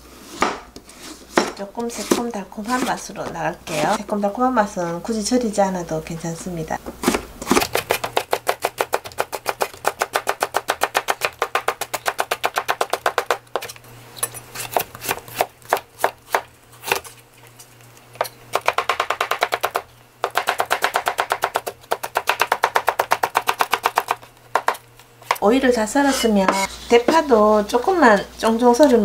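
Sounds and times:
knife chopping on plastic board: 1.3s - 3.9s, 7.0s - 13.7s, 18.5s - 25.4s.

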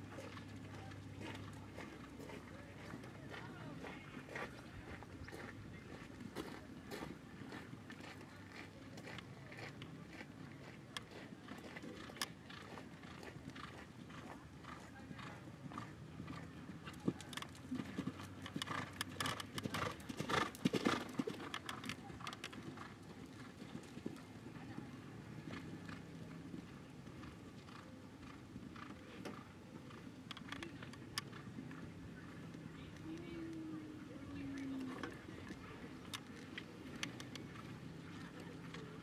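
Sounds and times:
horse hooves cantering on sand: 0.0s - 39.0s.

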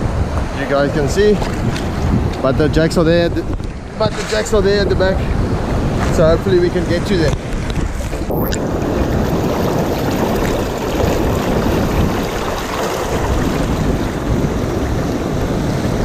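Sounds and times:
wind buffeting microphone: 0.0s - 16.0s
sea water sloshing and lapping: 0.3s - 2.4s, 7.3s - 16.0s.

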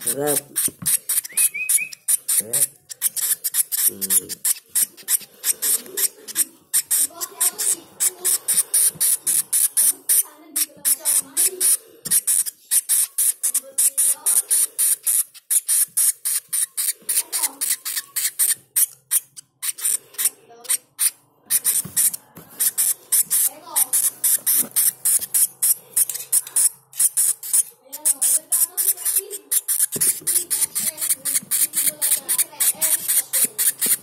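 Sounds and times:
nestling birds begging calls: 0.0s - 15.2s.

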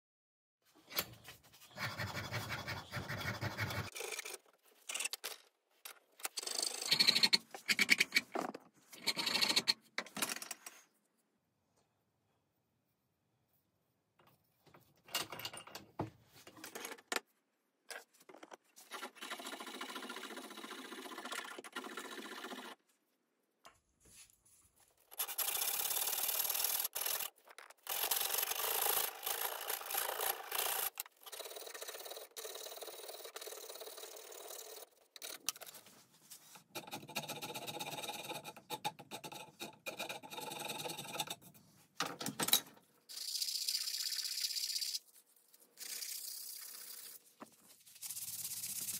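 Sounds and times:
file rasping on wood: 1.8s - 3.9s
sandpaper rubbing: 45.8s - 48.9s.

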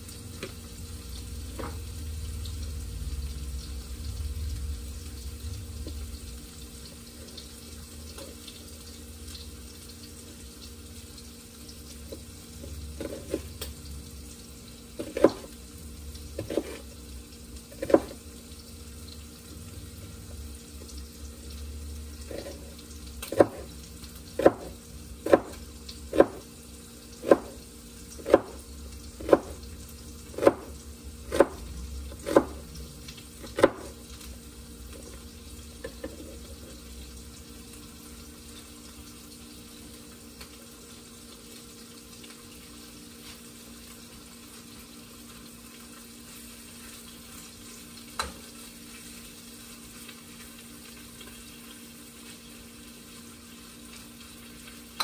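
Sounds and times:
steady kitchen hum: 0.0s - 55.0s
knife chopping on cutting board: 15.0s - 15.5s, 16.4s - 16.9s, 17.8s - 18.2s, 22.3s - 23.7s, 24.4s - 26.4s, 27.2s - 27.6s, 28.2s - 28.6s, 29.2s - 29.6s, 30.3s - 30.7s, 31.3s - 31.6s, 32.2s - 32.6s, 33.4s - 34.0s.

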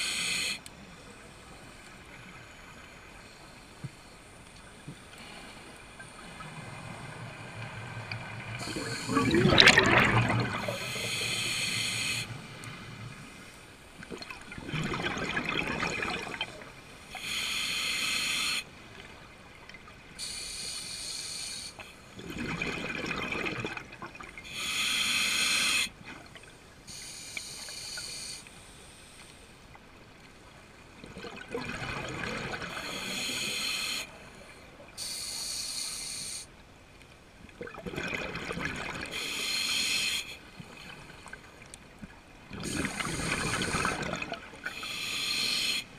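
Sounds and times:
regulator hiss on inhalation: 0.0s - 0.7s, 10.6s - 12.8s, 17.1s - 18.7s, 20.2s - 22.1s, 24.4s - 26.0s, 26.9s - 29.4s, 32.8s - 34.2s, 35.0s - 36.5s, 39.1s - 40.4s, 44.6s - 45.9s
bubbling on exhalation: 8.7s - 10.8s.

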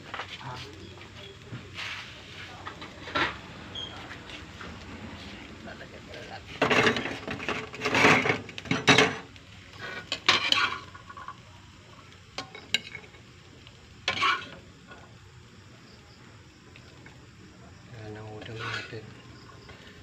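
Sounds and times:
metal spatula scraping wok: 1.7s - 5.4s, 6.4s - 11.4s, 14.0s - 14.6s, 18.4s - 19.8s.

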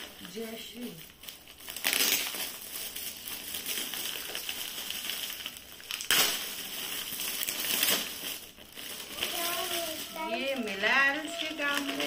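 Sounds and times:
gift-wrap paper crinkling: 0.0s - 12.0s
paper ripping: 1.7s - 2.7s, 9.1s - 12.0s.

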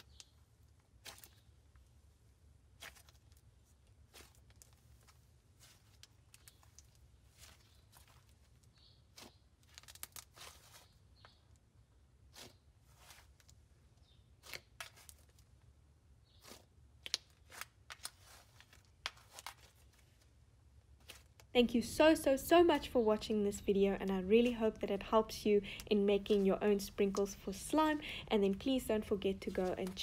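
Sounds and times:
slime crackling and squishing: 0.0s - 11.5s, 12.2s - 15.6s, 16.2s - 21.5s.

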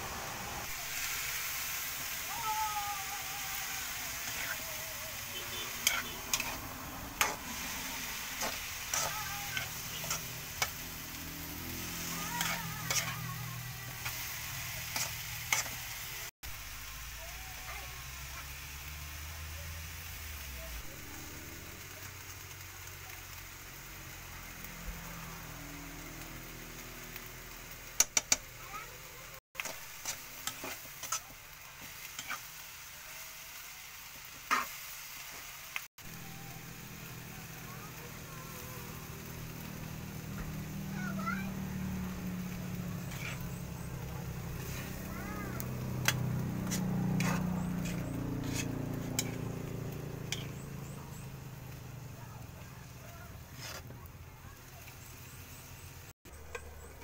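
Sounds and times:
food sizzling in a pan: 0.0s - 57.0s
metal spoon scraping a pan: 3.6s - 16.0s, 29.6s - 32.6s, 42.7s - 51.2s, 53.3s - 54.0s, 56.3s - 57.0s.

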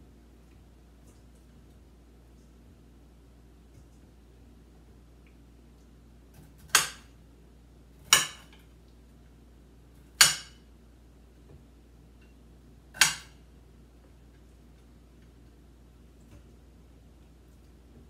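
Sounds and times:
knife chopping on cutting board: 8.1s - 8.4s, 13.0s - 13.3s.

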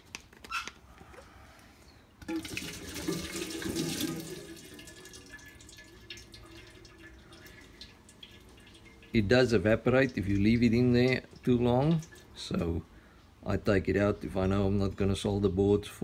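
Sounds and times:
fluid pouring into metal can: 2.2s - 12.4s.

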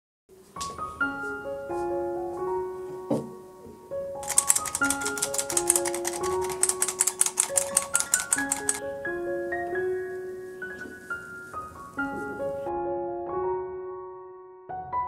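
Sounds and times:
light keyboard music: 0.4s - 15.0s
fast crisp ticks: 4.2s - 8.8s.

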